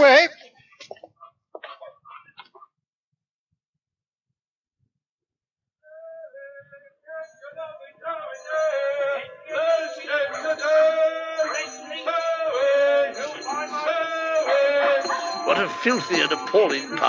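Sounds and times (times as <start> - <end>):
linking music: 8.4 - 17.0.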